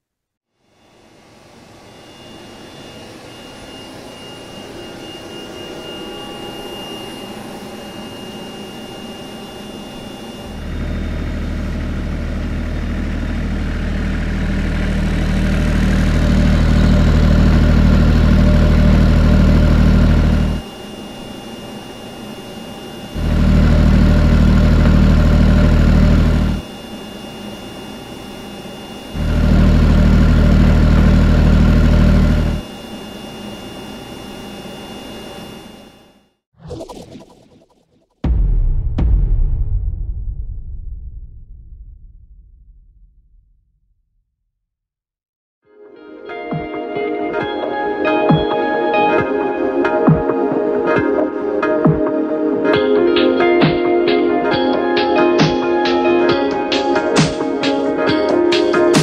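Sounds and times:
turbine high whine: 0.6s - 38.4s
diesel generator low rumble: 10.4s - 20.6s, 23.2s - 26.6s, 29.2s - 32.6s.

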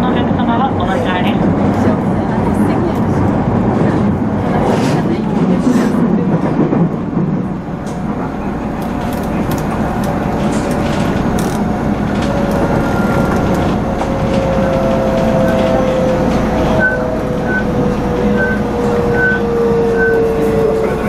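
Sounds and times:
wheels rumbling on rail: 0.0s - 21.0s
train motor whine: 10.0s - 21.0s.

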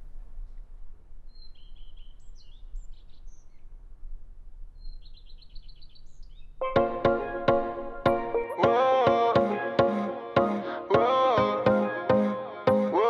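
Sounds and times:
small birds chirping: 1.2s - 3.8s, 4.7s - 7.8s.

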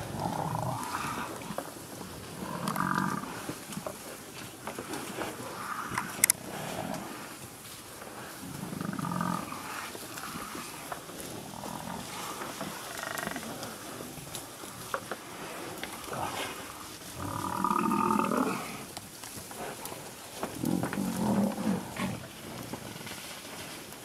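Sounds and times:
buffalo moaning bellows: 17.2s - 18.9s
lion growling: 20.5s - 22.7s.

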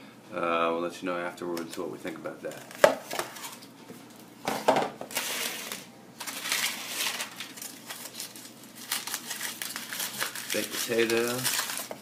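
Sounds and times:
aluminium foil crinkling: 5.1s - 12.0s.

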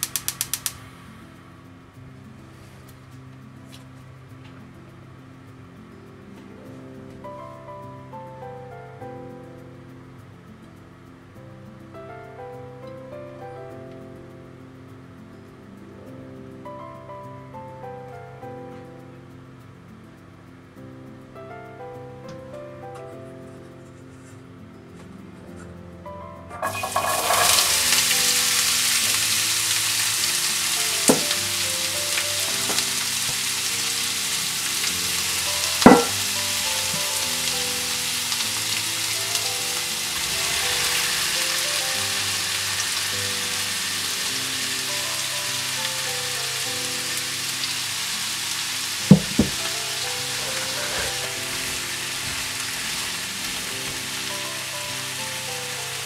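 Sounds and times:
vegetables sizzling in oil: 0.0s - 1.1s, 26.6s - 56.0s
soft background music: 0.0s - 56.0s
sharp knocks against pan: 31.1s - 31.4s, 35.9s - 36.3s, 49.1s - 49.6s.

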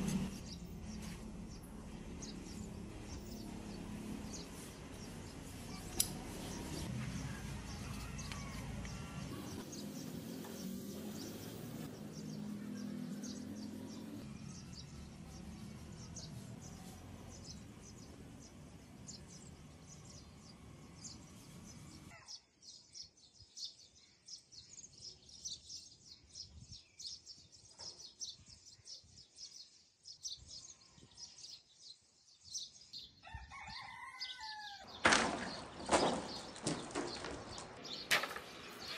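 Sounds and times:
small birds chirping: 0.0s - 38.9s
rooster crowing: 33.2s - 34.9s.

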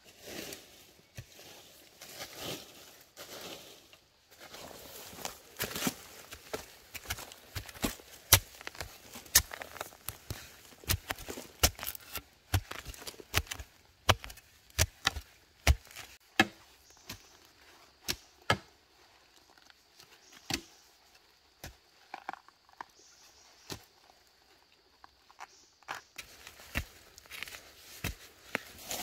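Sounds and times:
digging tool chopping into soil: 5.6s - 17.3s, 18.0s - 18.7s, 26.2s - 29.0s.

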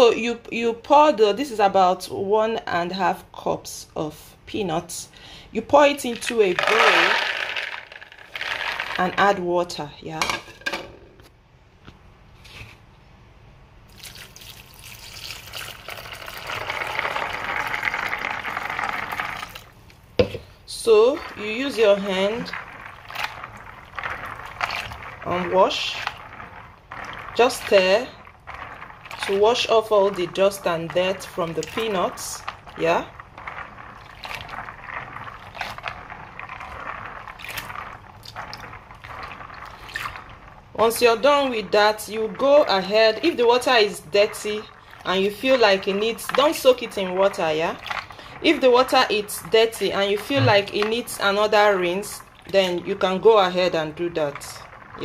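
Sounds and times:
water pouring into a bowl: 13.9s - 19.8s, 21.2s - 55.0s.

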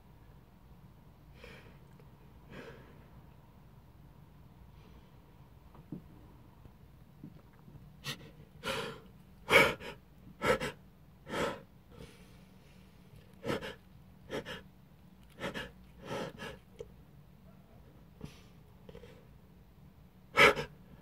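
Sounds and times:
person gasping breaths: 2.5s - 3.1s, 8.0s - 12.4s, 13.4s - 14.7s, 15.3s - 16.6s, 20.4s - 21.0s.

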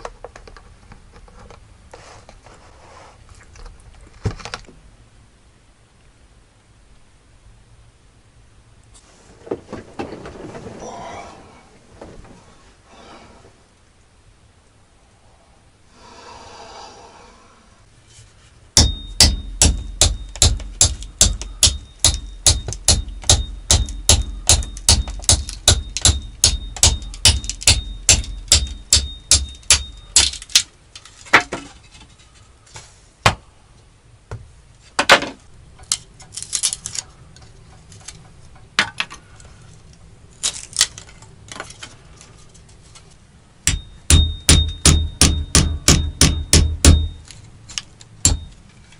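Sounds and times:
high ringing tone: 18.8s - 19.2s, 21.7s - 24.0s, 25.8s - 30.2s, 43.7s - 47.3s
axe splitting kindling: 18.8s - 32.1s.

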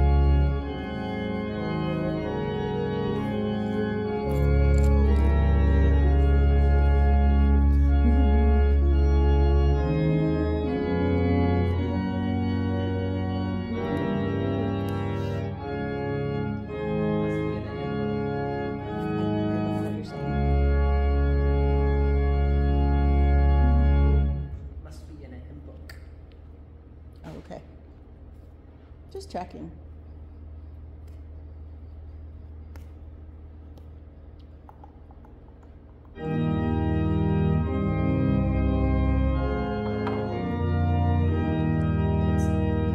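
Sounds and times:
organ playing held chords: 0.0s - 25.0s, 35.9s - 42.9s
deep organ pedal bass notes: 0.0s - 25.4s, 36.1s - 42.9s.

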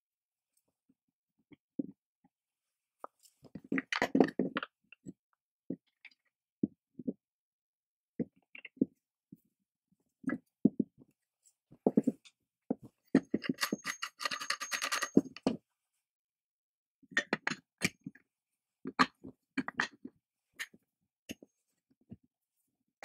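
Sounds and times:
metal parts clinking: 13.4s - 15.3s.

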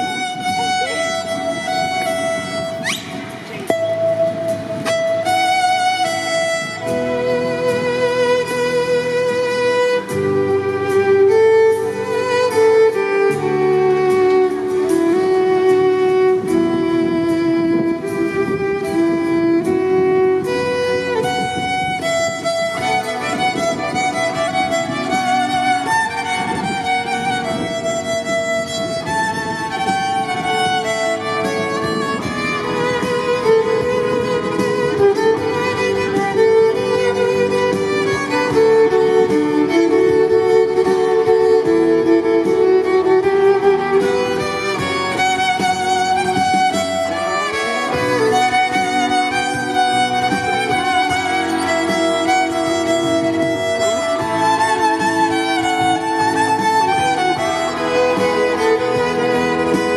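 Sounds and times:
backing track with bass and beat: 0.0s - 59.9s
violin melody over loudspeaker: 0.0s - 59.9s.

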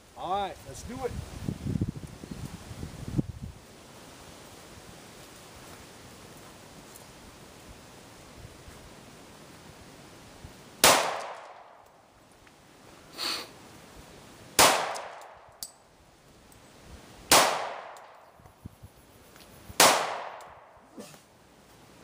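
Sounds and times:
pistol shots: 10.8s - 11.8s, 14.6s - 15.5s, 17.3s - 18.2s, 19.8s - 20.7s.

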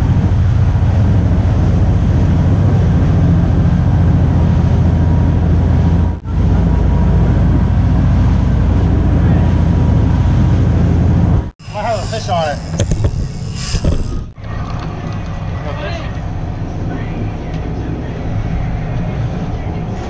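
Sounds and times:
water rushing: 0.0s - 12.8s
boat engines droning: 0.0s - 20.0s.

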